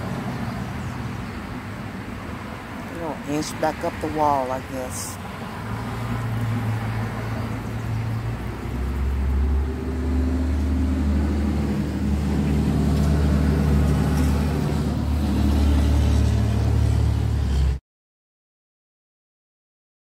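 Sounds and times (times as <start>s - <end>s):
vehicle engine droning: 5.2s - 17.8s.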